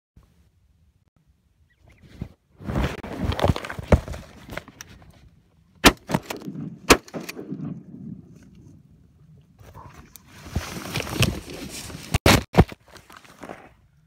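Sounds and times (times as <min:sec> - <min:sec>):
rustling and handling noise: 0:02.0 - 0:05.4, 0:09.6 - 0:13.8.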